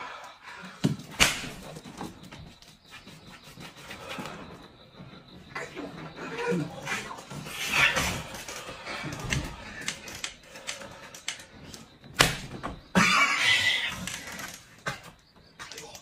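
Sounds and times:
sharp smack: 1.2 - 1.6.

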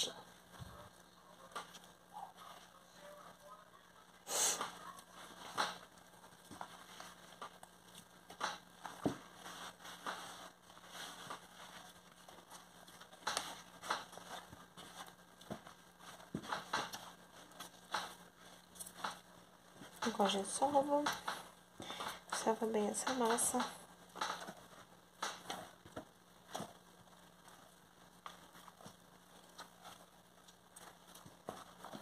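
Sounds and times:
hands kneading sticky dough: 0.0 - 32.0.

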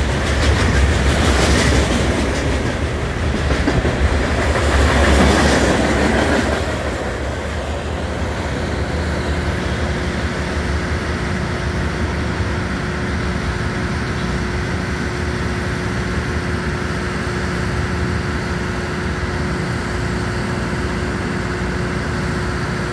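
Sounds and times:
train rumble: 0.0 - 22.9.

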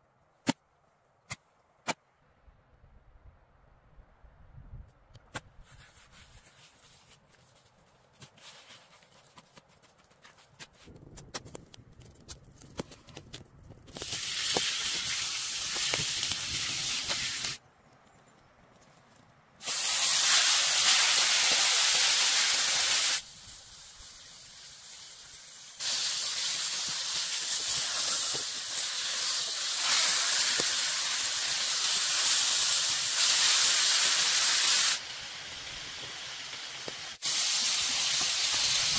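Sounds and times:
meat sizzling in hot oil: 14.0 - 17.6, 19.6 - 38.9.

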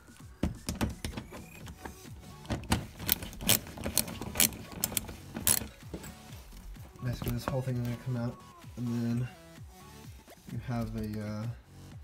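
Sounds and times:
hand ratchet clicking: 0.6 - 8.0.

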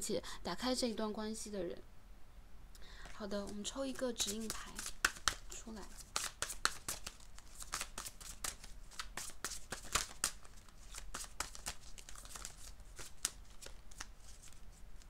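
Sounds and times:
cards being shuffled: 3.0 - 15.0.

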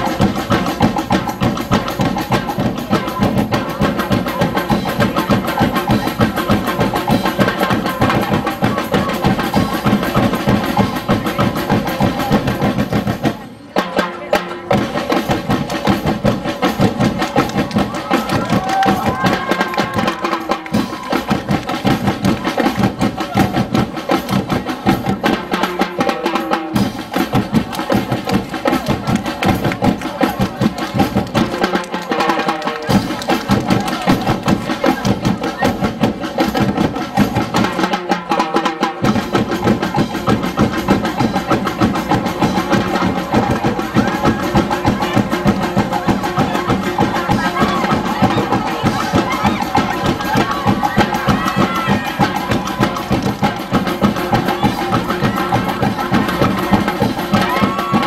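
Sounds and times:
percussion ensemble drumming: 0.0 - 58.0.

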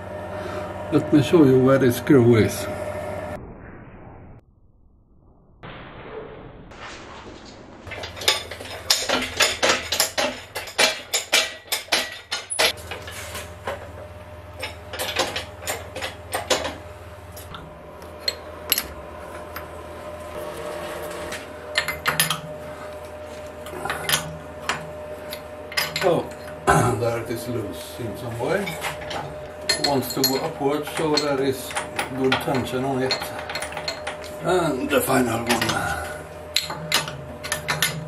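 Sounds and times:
metal tools clinking and clanking: 7.9 - 13.9, 14.6 - 16.8, 21.8 - 22.5, 23.8 - 26.8, 28.4 - 38.0.

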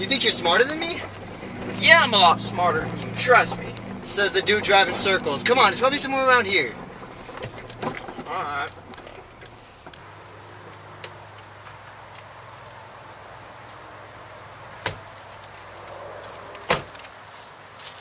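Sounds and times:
high insect drone: 10.0 - 18.0.

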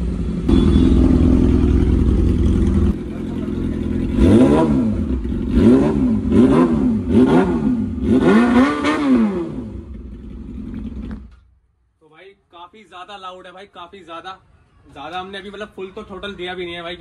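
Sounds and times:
motorcycle engine revving: 0.0 - 11.4.

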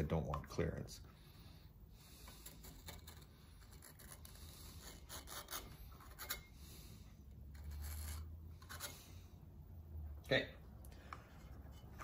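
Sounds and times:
steel scribe scraping metal: 2.4 - 6.8, 7.5 - 9.2.

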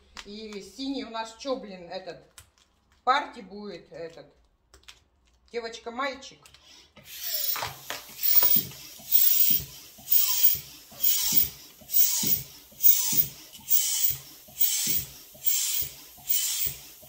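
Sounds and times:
balloon pump air hiss: 7.0 - 17.0
pump squeak: 7.0 - 17.0.

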